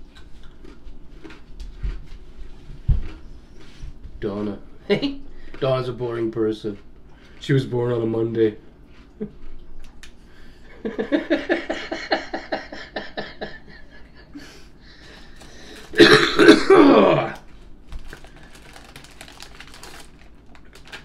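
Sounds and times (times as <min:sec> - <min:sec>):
people laughing: 0:10.7 - 0:14.6
loud harsh cough: 0:15.9 - 0:17.4.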